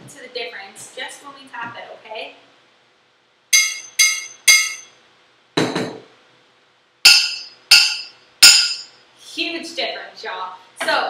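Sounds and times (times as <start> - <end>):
dull knock on pan: 5.6 - 6.0.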